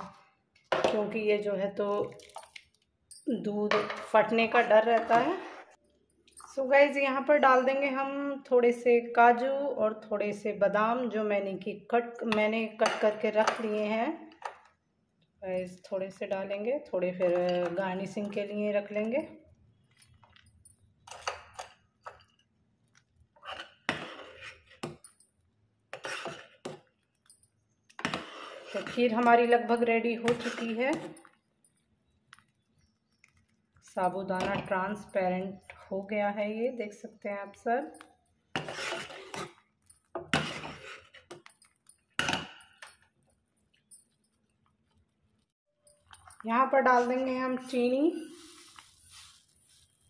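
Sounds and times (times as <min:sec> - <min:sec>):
ladle scraping saucepan: 0:25.9 - 0:26.6, 0:28.0 - 0:31.1, 0:38.5 - 0:41.4
ladle scraping and clinking pan: 0:38.6 - 0:41.4.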